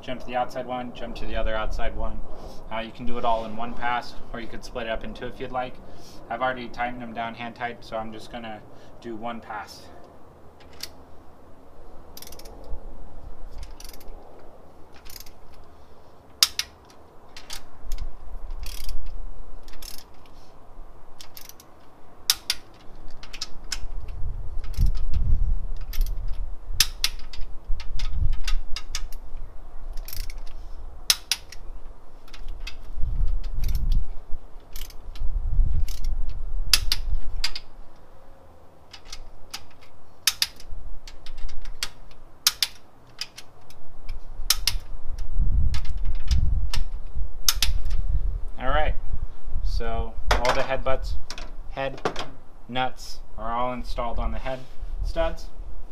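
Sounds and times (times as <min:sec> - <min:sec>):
wrench ratchet clicking: 0:12.2 - 0:12.6, 0:13.6 - 0:14.1, 0:15.0 - 0:15.6, 0:16.4 - 0:20.3, 0:21.2 - 0:21.7, 0:25.8 - 0:29.2, 0:30.0 - 0:31.6, 0:34.7 - 0:35.2, 0:35.8 - 0:36.1, 0:38.9 - 0:43.8, 0:44.5 - 0:44.9.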